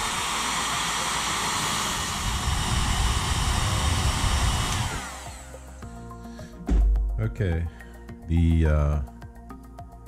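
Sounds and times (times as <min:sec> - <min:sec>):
hair dryer running: 0:00.0 - 0:06.9.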